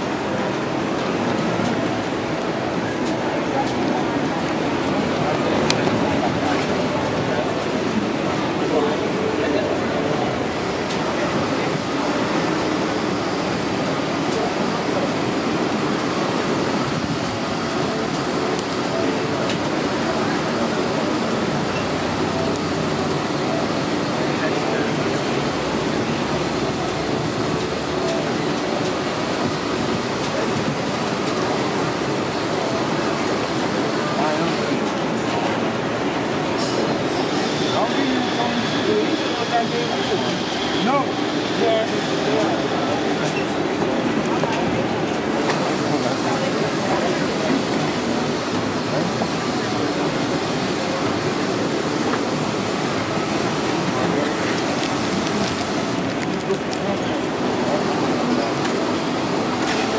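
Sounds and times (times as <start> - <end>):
busy indoor food hall ambience: 0.0 - 59.9.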